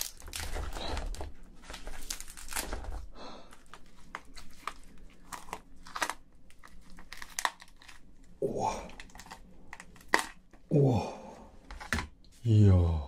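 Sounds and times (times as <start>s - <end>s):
crayfish shell cracking: 0.0s - 0.9s, 2.0s - 3.0s, 3.6s - 10.7s.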